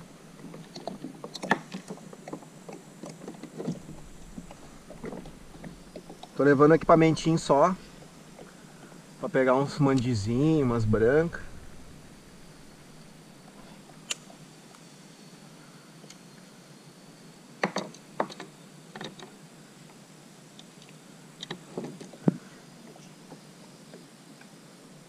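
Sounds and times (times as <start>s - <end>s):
paddle knocking against kayak hull: 0.4s - 8.6s.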